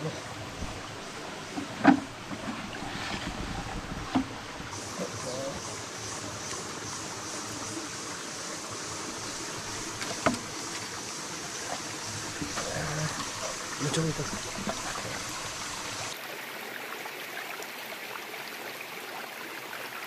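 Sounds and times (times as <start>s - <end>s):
stream water running: 0.0s - 20.0s.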